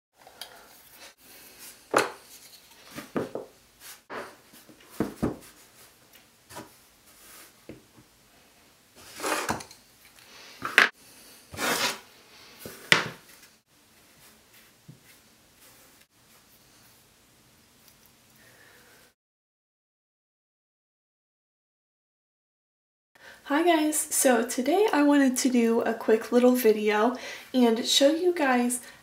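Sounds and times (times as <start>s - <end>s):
objects scraping on wood: 9.0s - 9.8s, 10.6s - 12.0s.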